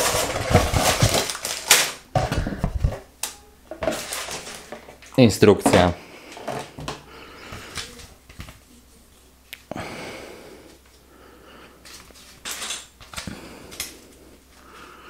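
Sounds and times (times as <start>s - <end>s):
paper pages rustling: 0.0s - 3.0s.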